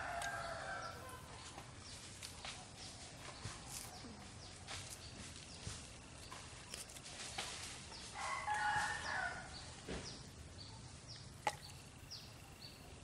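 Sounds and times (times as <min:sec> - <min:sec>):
rooster crowing: 0:00.0 - 0:01.2, 0:08.2 - 0:09.5.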